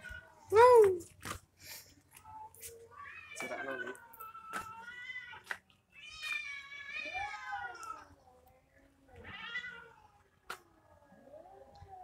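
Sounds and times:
cats yowling: 6.0 - 8.2.

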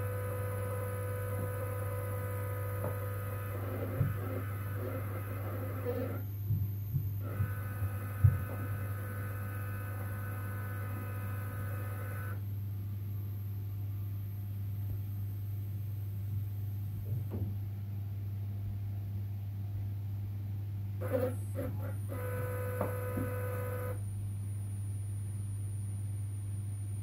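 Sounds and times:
motor whine: 0.0 - 6.3, 7.2 - 12.4, 21.0 - 24.0.

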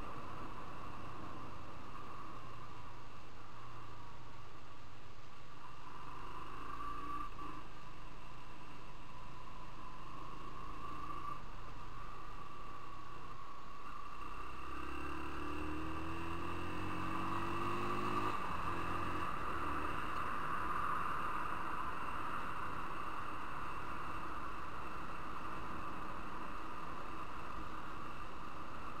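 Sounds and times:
wind and road noise: 0.0 - 29.0
motorcycle engine accelerating: 14.1 - 28.2.

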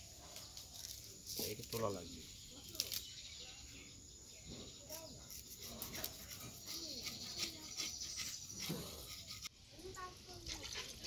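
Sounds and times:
faint distant voices: 0.0 - 11.0
dry crackles of fibres handled: 0.2 - 3.3.

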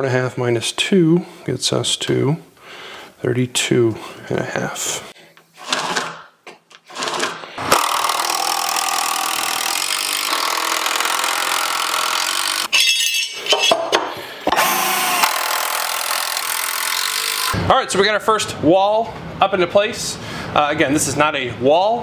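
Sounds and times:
power tool cutting wood: 6.9 - 12.7, 14.5 - 17.6.

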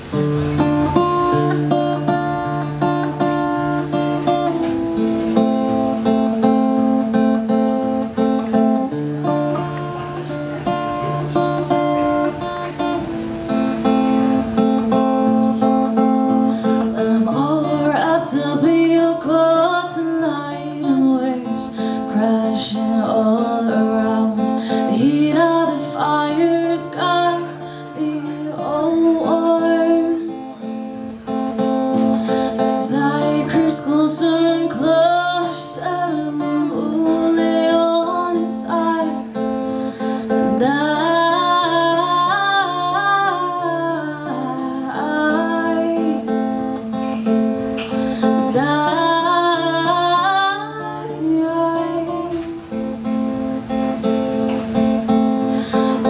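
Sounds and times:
acoustic guitar strumming: 0.0 - 56.0
woman singing: 15.6 - 30.7, 31.9 - 46.9, 48.1 - 52.7, 55.6 - 56.0.

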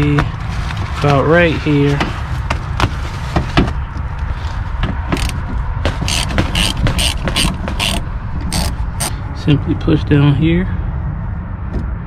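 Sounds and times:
socket ratchet clicking: 6.0 - 9.1.

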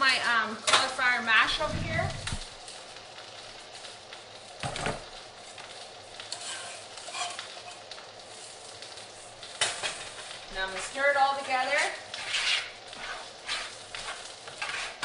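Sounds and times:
utensil scraping a pan: 6.3 - 7.8, 9.6 - 15.0.

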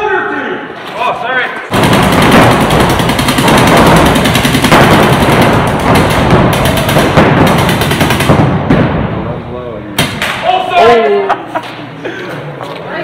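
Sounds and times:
paintball markers firing rapidly: 1.7 - 8.5.

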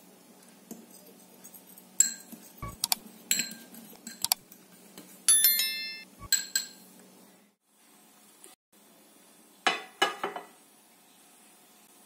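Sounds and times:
fork clinking against glass bowl: 2.0 - 4.4.

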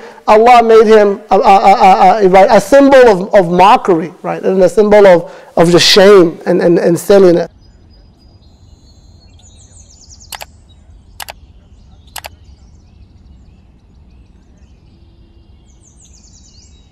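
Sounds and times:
songbirds calling: 4.4 - 16.9
sharp clicks: 10.3 - 10.5, 12.1 - 12.4.

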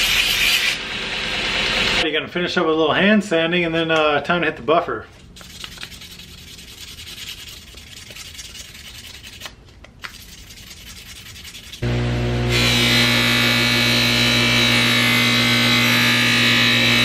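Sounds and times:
sandpaper scraping metal: 5.3 - 11.8
bench buffer motor whining: 11.8 - 17.0.

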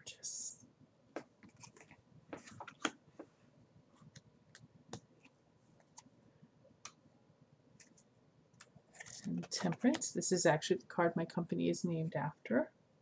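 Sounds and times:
cards clicking and rustling: 1.2 - 3.0.

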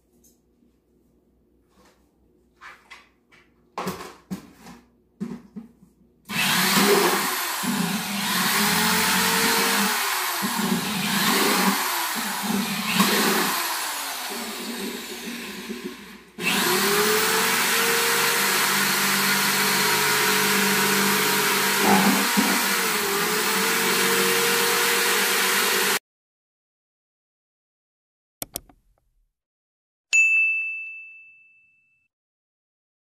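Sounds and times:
electric drill boring through plastic: 6.3 - 26.0
quick clicks: 28.4 - 29.2
bell ding: 30.2 - 32.1.

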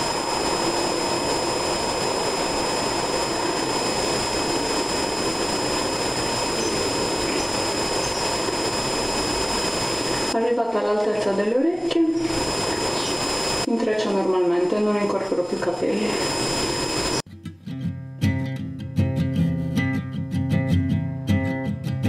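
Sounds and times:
loud rushing noise: 0.0 - 10.4
thin high whines: 0.0 - 10.4, 11.8 - 17.2.

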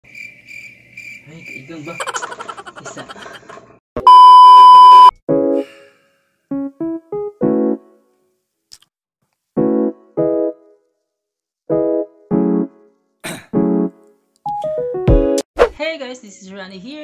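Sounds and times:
test-tone beep: 4.0 - 5.1.

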